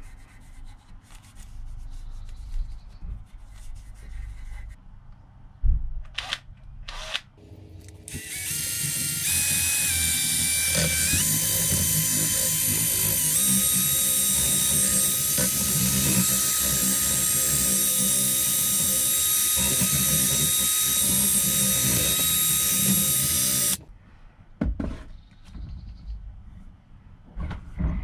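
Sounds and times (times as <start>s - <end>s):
cordless drill whining: 7.8s - 23.8s.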